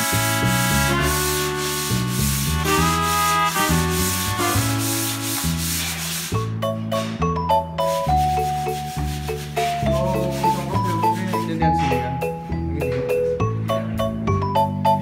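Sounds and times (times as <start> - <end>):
sandpaper rasping on plaster wall: 0.0 - 6.6, 7.8 - 11.7
melodic background music: 0.0 - 15.0.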